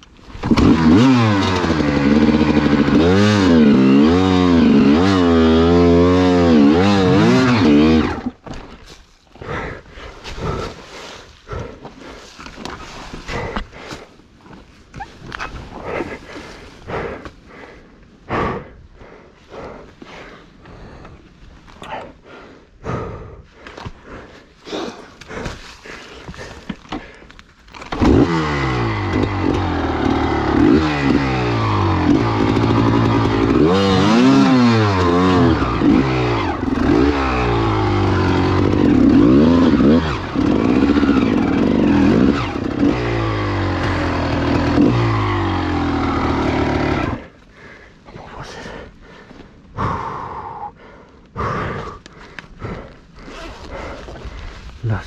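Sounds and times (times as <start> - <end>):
motorcycle engine revving: 0.3 - 8.4, 27.9 - 47.4.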